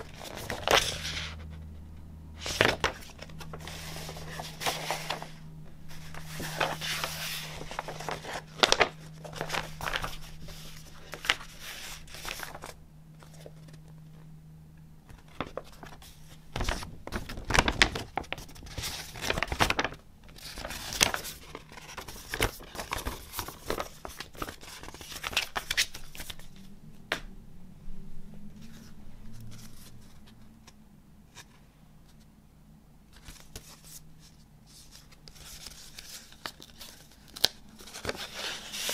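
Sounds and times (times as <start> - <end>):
paper envelope handled: 0.0 - 1.5, 2.4 - 14.3, 15.1 - 26.7, 33.1 - 38.9
paper poster rustling: 0.0 - 1.6, 2.4 - 14.3, 15.1 - 26.7, 28.6 - 32.3, 33.1 - 38.9.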